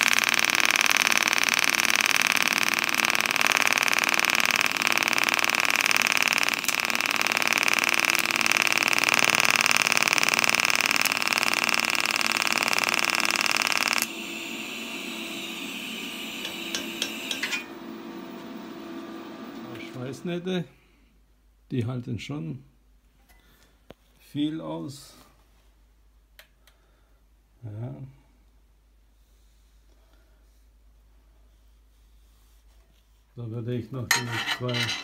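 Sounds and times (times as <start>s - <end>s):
welding arc buzzing: 0.0s - 20.5s.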